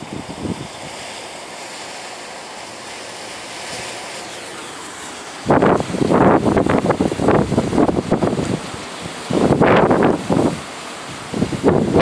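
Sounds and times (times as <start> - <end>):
wind buffeting microphone: 0.0 - 1.1, 5.4 - 12.0
strong wind hissing: 0.0 - 12.0.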